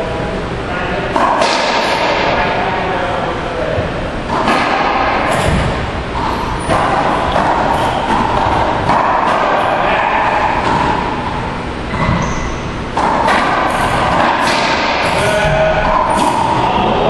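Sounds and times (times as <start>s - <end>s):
steady background roar: 0.0s - 17.0s
racquetball smacks: 1.2s - 2.4s, 4.2s - 12.2s, 12.9s - 16.6s.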